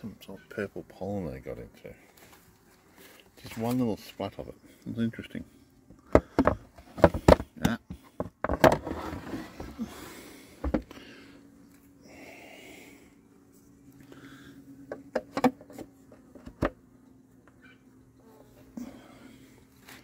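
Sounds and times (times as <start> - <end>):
low steady hum: 0.0 - 20.0
knocks and scrapes of hive parts: 2.1 - 4.4, 5.8 - 10.0, 10.6 - 11.1, 14.7 - 18.8.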